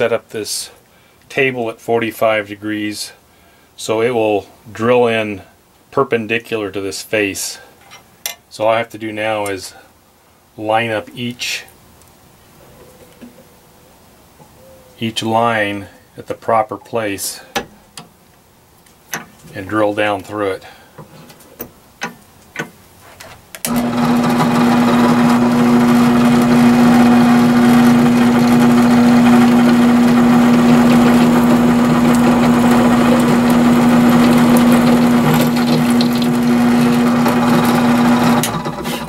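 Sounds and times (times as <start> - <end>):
drill press motor humming: 23.7 - 39.0.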